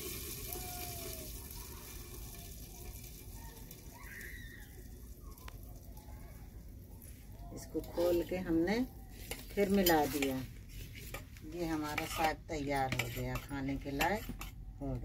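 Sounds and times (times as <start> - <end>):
hot oil sizzling in a pot: 0.0 - 6.0.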